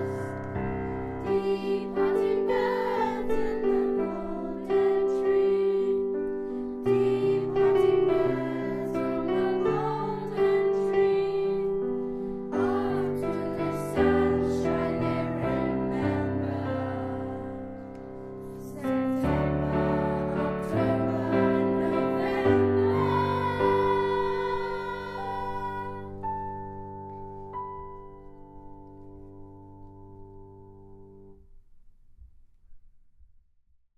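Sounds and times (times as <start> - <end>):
children's choir singing: 0.0 - 26.6
piano accompaniment: 0.0 - 31.4.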